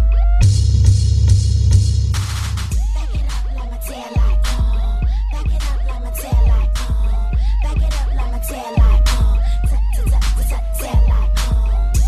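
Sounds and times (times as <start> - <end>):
hip hop dance track: 0.0 - 12.0.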